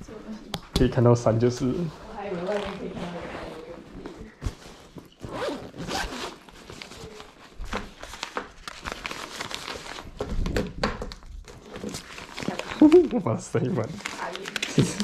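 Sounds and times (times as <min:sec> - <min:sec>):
fabric bag rustling: 0:01.7 - 0:10.3, 0:11.4 - 0:15.0
packet crinkling: 0:06.2 - 0:15.0.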